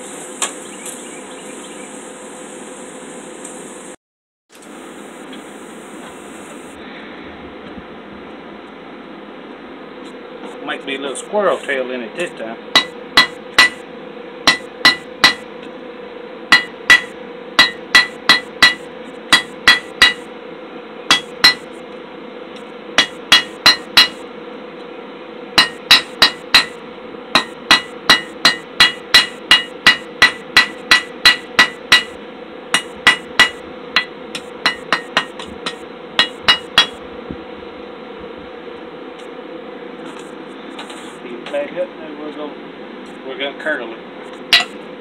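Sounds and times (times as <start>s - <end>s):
steady hum: 0.0s - 45.0s
hammer striking hot steel on anvil: 12.7s - 15.5s, 16.5s - 20.3s, 21.1s - 21.8s, 23.0s - 24.3s, 25.6s - 37.0s, 44.4s - 44.8s.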